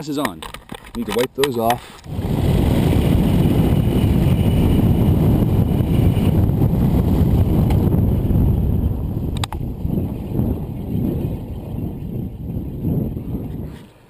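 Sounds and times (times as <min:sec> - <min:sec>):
wind rushing across microphone: 0:00.0 - 0:14.0.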